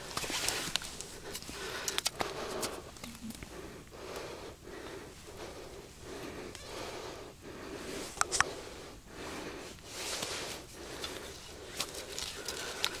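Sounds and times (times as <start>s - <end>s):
person breathing heavily: 0.0s - 13.0s.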